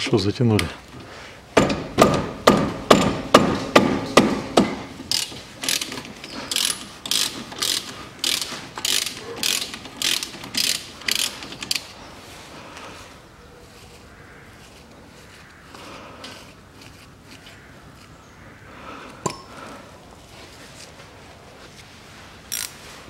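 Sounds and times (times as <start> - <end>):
ratchet wrench clicking: 5.1 - 11.9, 22.5 - 22.8.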